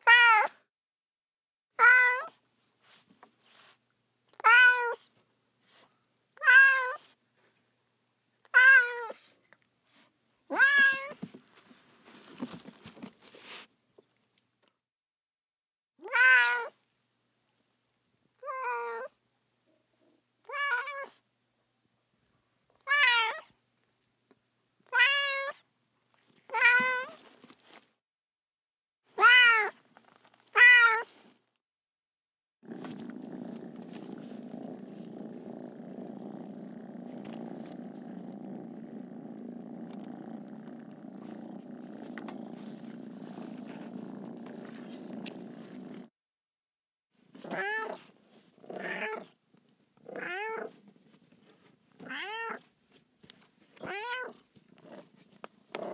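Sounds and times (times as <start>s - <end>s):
cat meowing: 0.0s - 0.6s, 1.8s - 2.4s, 4.4s - 5.0s, 6.4s - 7.0s, 8.5s - 9.2s, 10.5s - 11.2s, 16.0s - 16.8s, 29.2s - 29.8s, 30.5s - 31.1s, 47.5s - 48.0s, 50.1s - 50.7s, 52.1s - 52.6s, 53.8s - 54.4s
cat purring: 32.6s - 46.1s.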